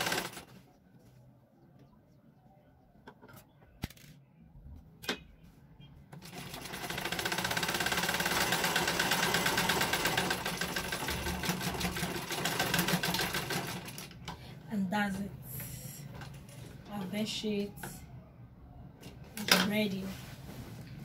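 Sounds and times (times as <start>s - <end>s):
sewing machine clattering: 0.0s - 0.5s, 6.2s - 14.2s.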